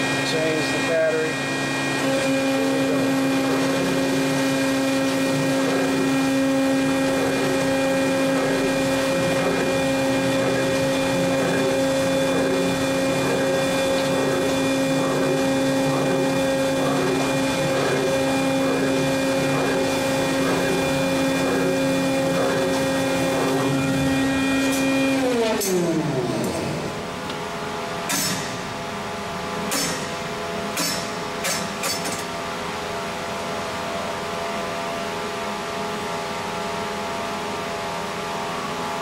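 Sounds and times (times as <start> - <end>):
electric motor humming whine: 0.0 - 29.5.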